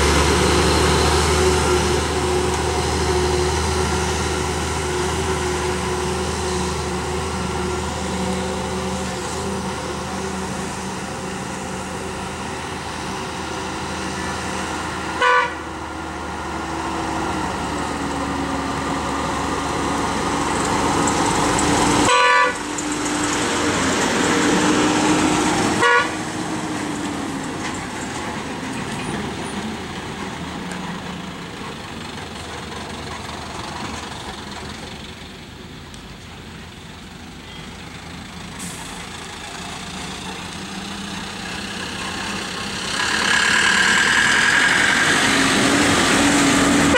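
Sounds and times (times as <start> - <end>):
diesel lorry engines running: 0.0 - 46.9
truck horn: 15.1 - 15.8, 22.0 - 22.7, 25.7 - 26.4, 46.6 - 46.9.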